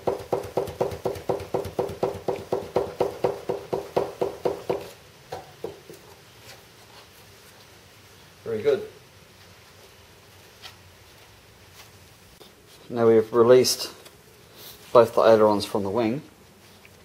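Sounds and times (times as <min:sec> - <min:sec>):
flap knocking on hinge: 0:00.0 - 0:06.0.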